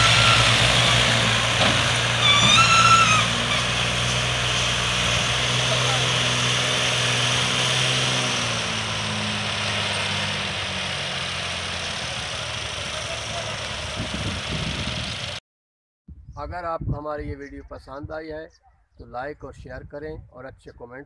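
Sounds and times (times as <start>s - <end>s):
diesel tractor engines droning: 0.0s - 15.4s.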